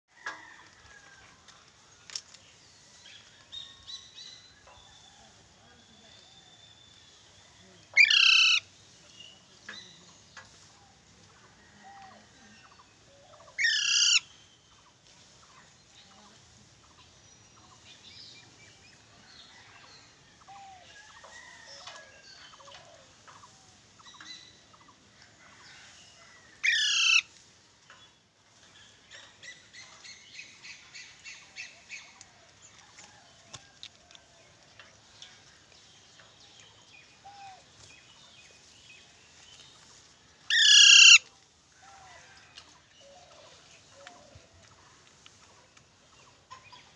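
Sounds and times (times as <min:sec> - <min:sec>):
parakeet harsh screeches: 0:40.5 - 0:41.2.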